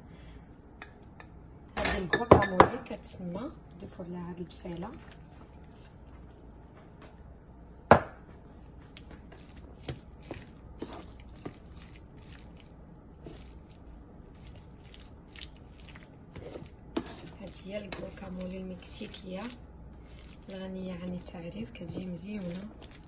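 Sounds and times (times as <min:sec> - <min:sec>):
food squishing while stirred: 0:04.6 - 0:07.3, 0:08.7 - 0:23.0.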